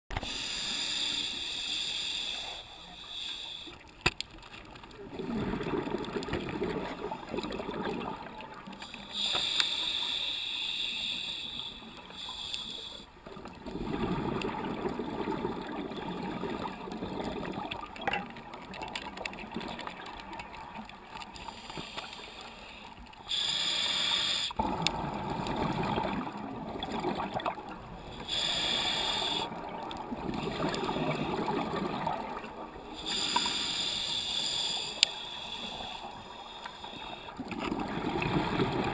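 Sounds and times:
regulator hissing inhale: 0.2 - 3.9, 8.8 - 13.2, 21.4 - 24.6, 28.0 - 29.6, 32.9 - 37.4
gurgling exhaled bubbles: 4.9 - 8.7, 13.3 - 20.8, 24.6 - 33.4, 37.4 - 38.9.

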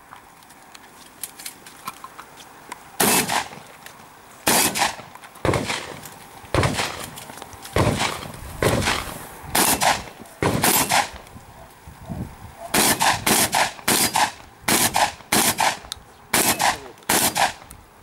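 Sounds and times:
shotgun shots: 3.0 - 3.6, 4.4 - 7.2, 7.8 - 11.2, 12.7 - 17.6.

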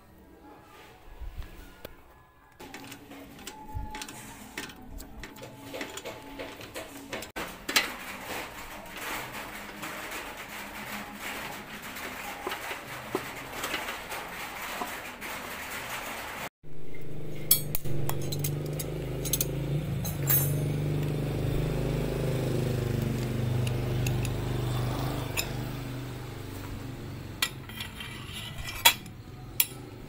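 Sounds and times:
wrenches clinking on metal parts: 17.4 - 21.0.

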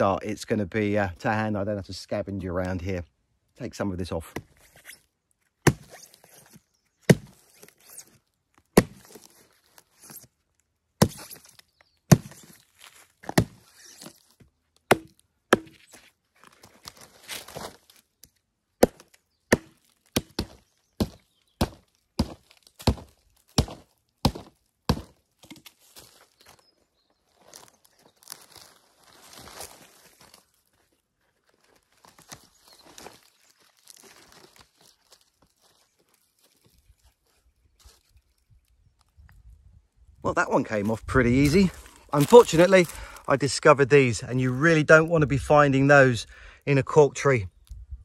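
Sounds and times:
bark scraping and crunching: 4.2 - 38.4, 40.7 - 43.1
tool chopping into cork bark: 7.1 - 7.4, 8.8 - 9.2, 11.0 - 11.4, 12.1 - 12.5, 14.9 - 16.0, 18.8 - 25.7.

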